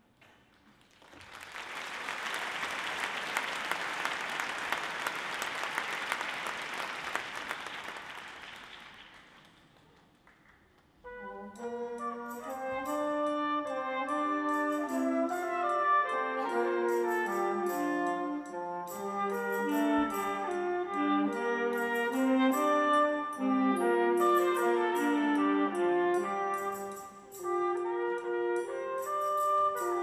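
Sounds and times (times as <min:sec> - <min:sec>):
audience applauding: 0:00.6 - 0:10.6
wind band playing: 0:11.0 - 0:30.0.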